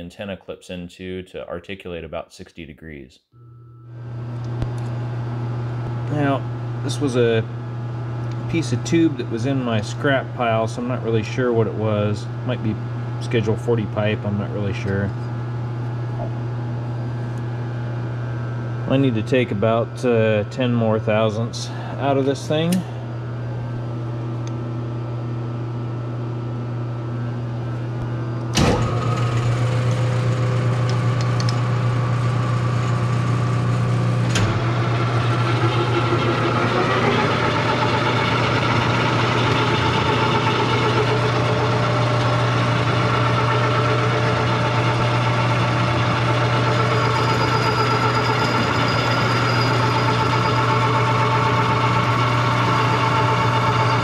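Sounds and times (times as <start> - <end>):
metal lathe humming: 28.4 - 54.0.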